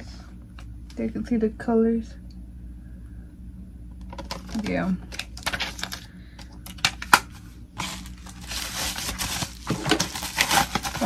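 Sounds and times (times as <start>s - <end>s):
plastic packaging clicks: 4.1s - 11.0s
plastic packaging crinkling: 4.1s - 11.0s.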